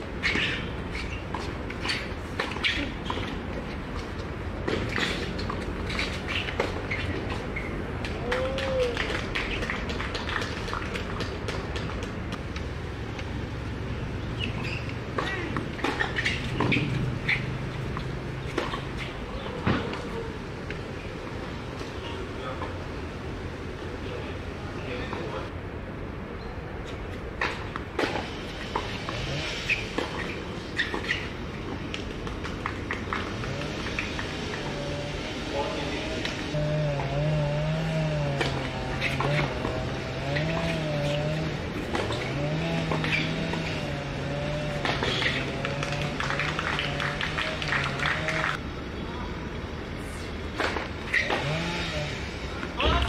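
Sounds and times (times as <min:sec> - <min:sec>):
steady outdoor hum: 0:00.0 - 0:53.0
shoes chirping on court: 0:00.2 - 0:12.5, 0:14.3 - 0:19.2, 0:26.8 - 0:34.7, 0:38.4 - 0:48.5
tennis ball bouncing: 0:00.2 - 0:13.4, 0:14.3 - 0:20.1, 0:29.6 - 0:34.8, 0:38.2 - 0:48.6
racket hitting tennis ball: 0:14.4 - 0:20.1, 0:37.8 - 0:48.6.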